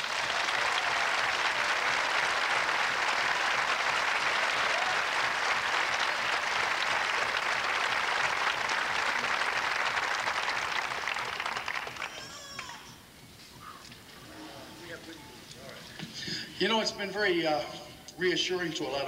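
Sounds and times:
audience applauding: 0.0s - 13.1s.

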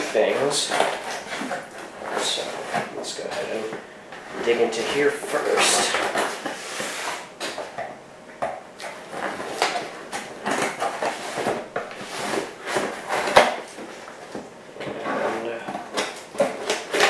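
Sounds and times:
scissors cutting cardboard and tape: 0.0s - 3.6s, 8.8s - 13.8s, 15.0s - 17.0s.

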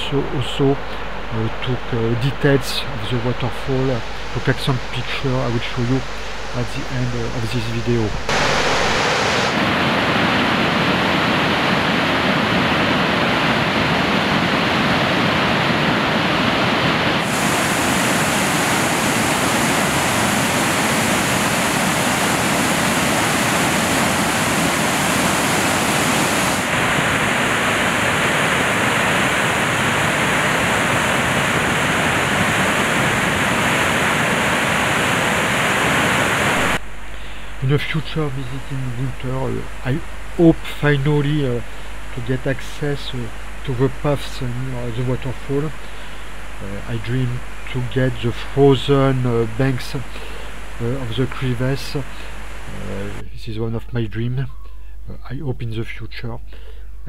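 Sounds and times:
waterfall rushing: 8.0s - 36.8s.

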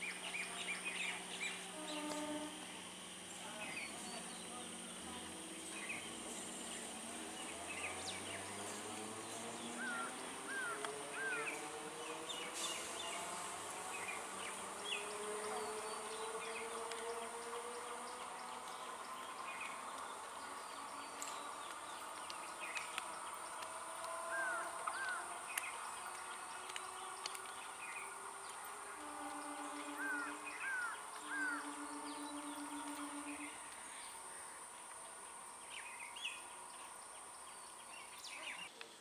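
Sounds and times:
bird chirps: 24.2s - 34.2s
faint low wavering hum: 24.3s - 38.4s
high-pitched insect drone: 28.0s - 34.8s.

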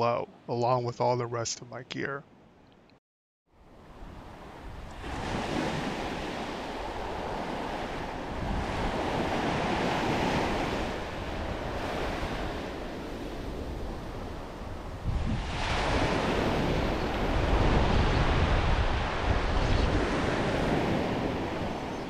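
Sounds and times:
wind rumbling on microphone: 3.7s - 22.0s
ocean surf washing onto beach: 3.8s - 22.0s.

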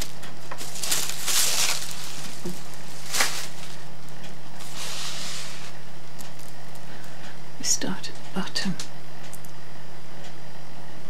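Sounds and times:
paper and fabric rustling: 0.0s - 3.9s, 4.6s - 5.8s
steady low hum: 0.0s - 11.0s.

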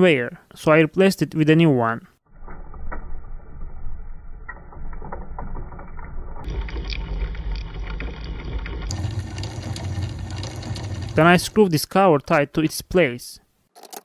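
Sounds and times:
motor gearbox whirring: 3.7s - 11.7s.

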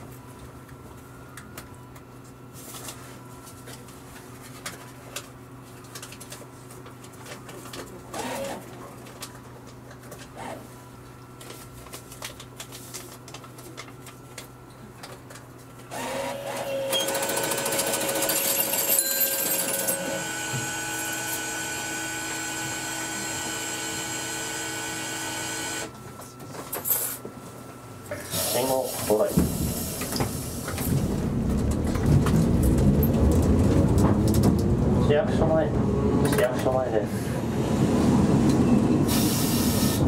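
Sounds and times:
air compressor droning and rattling: 2.2s - 10.8s, 15.3s - 38.4s, 39.0s - 40.0s
tram hum: 29.3s - 40.0s.

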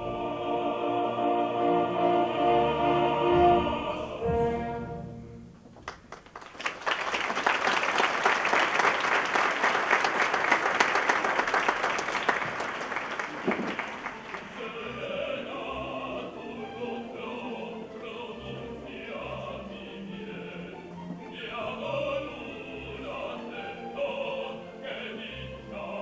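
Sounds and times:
opera singers and orchestra: 0.0s - 5.5s, 13.0s - 26.0s
audience applause: 5.8s - 14.7s.

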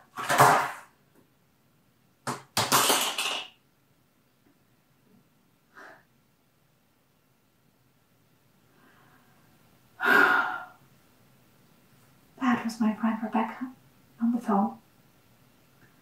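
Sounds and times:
faint breath: 5.7s - 6.2s, 8.7s - 10.8s.

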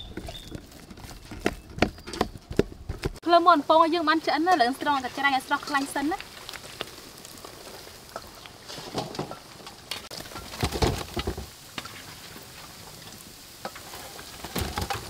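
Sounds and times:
hot oil crackling and sizzling: 3.3s - 15.0s.

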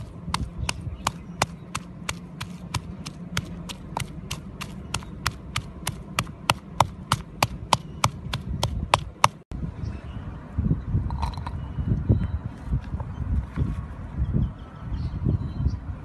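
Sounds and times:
pestle pounding in wooden mortar: 0.0s - 9.4s.

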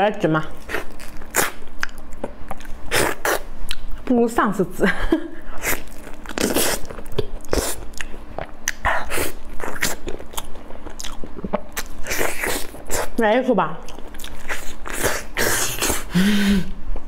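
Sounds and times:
person chewing mouth clicks: 1.3s - 4.0s, 5.7s - 13.2s, 13.9s - 16.0s.

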